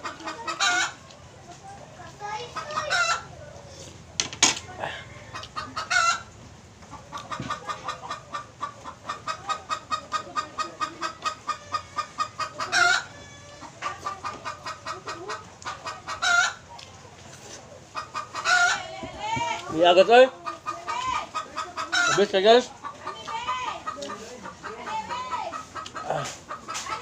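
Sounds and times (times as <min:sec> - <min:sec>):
chicken squawks: 0:00.0 - 0:01.0, 0:02.4 - 0:03.3, 0:05.0 - 0:06.3, 0:06.9 - 0:16.7, 0:18.0 - 0:19.0, 0:19.7 - 0:27.0
chicken clucking: 0:00.0 - 0:27.0.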